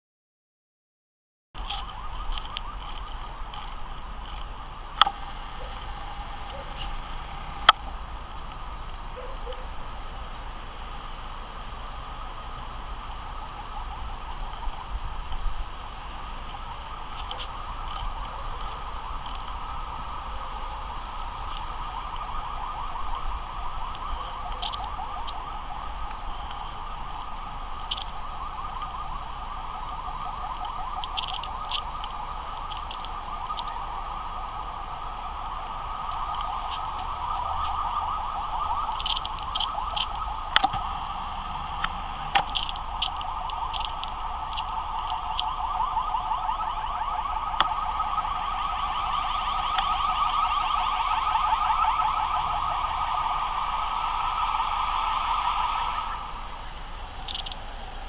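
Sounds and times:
fast-pulsing drone: 4.6s - 8.8s, 38.3s - 46.3s
sharp clicks: 23.9s - 25.4s, 30.6s - 33.8s, 38.9s - 41.0s, 41.8s - 45.7s, 57.3s - 57.6s.

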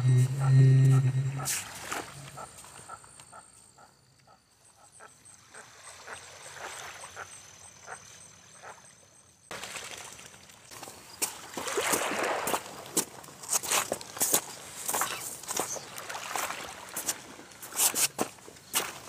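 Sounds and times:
small waves lapping: 5.4s - 19.0s
faint splashes: 9.5s - 13.0s.

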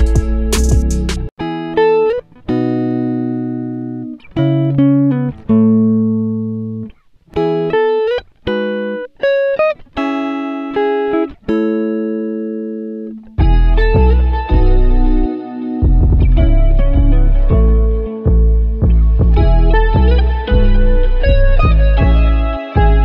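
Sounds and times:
plucked guitar melody: 0.0s - 23.0s.

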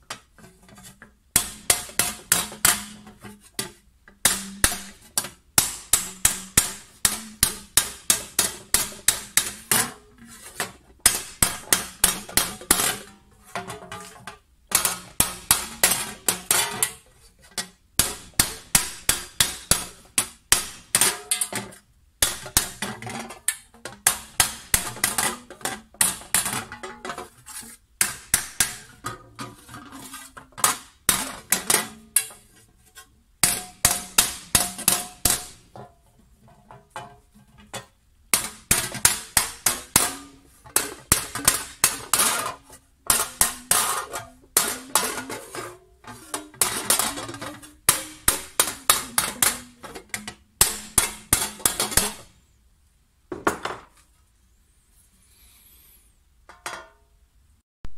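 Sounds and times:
hammer striking copper tray: 5.6s - 10.0s, 38.4s - 42.5s, 46.3s - 49.8s, 50.6s - 52.2s.

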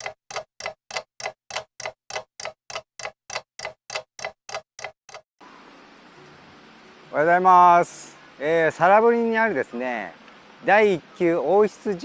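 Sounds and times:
clock-like ticking: 0.0s - 5.2s.

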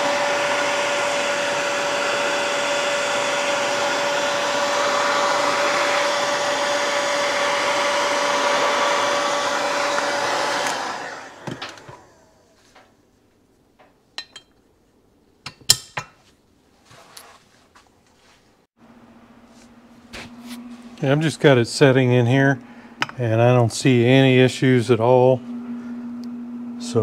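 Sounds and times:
heat gun blowing: 0.0s - 12.6s.

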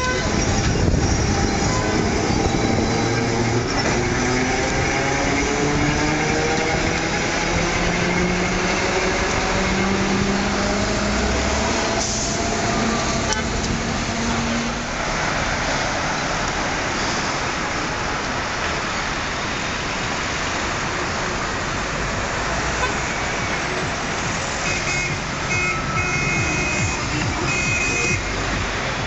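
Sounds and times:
tram motor whine: 0.0s - 15.2s
road traffic noise: 0.0s - 29.0s.

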